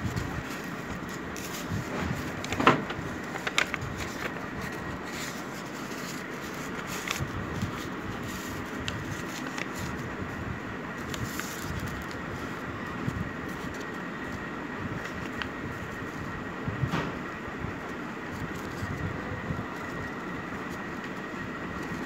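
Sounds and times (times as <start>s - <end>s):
paper crackles: 0.0s - 16.4s, 17.8s - 22.0s
paper rustling and being creased: 0.0s - 22.0s
steady background noise: 0.0s - 22.0s.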